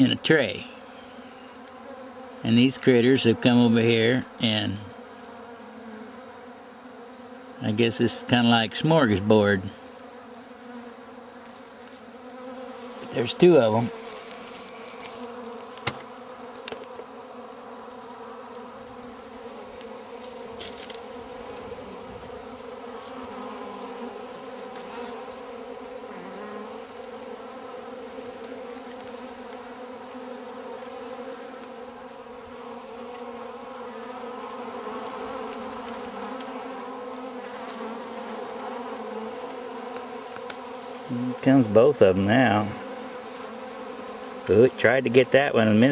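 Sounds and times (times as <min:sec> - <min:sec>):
honeybees buzzing: 0:00.0 - 0:45.9.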